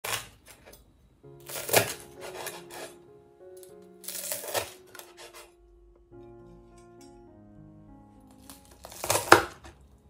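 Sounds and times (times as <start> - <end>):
soft background music: 1.1 - 10.0
knife crunching through fried batter: 8.7 - 9.6.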